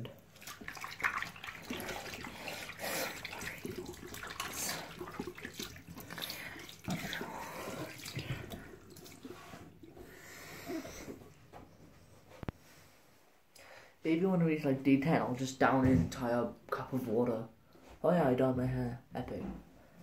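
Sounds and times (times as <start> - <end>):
tap water running into sink: 0.0 - 11.2
hands splashing under water: 0.4 - 9.4.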